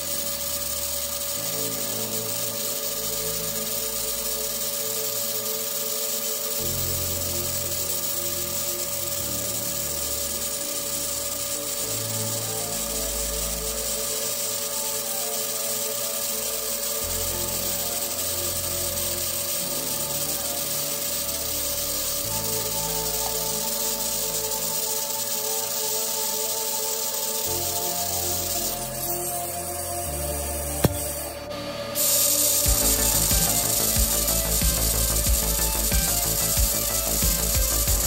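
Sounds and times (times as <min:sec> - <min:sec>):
welding arc hissing: 0:00.0 - 0:38.0
electronic music with bass line: 0:32.6 - 0:38.0.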